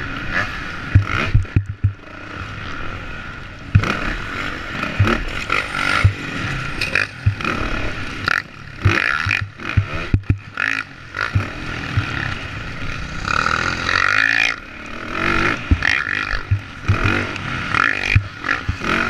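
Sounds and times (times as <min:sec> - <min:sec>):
dirt bike engine revving: 0:00.0 - 0:19.0
sharp knocks: 0:00.9 - 0:02.0, 0:05.0 - 0:07.6, 0:11.3 - 0:12.3, 0:15.7 - 0:17.1.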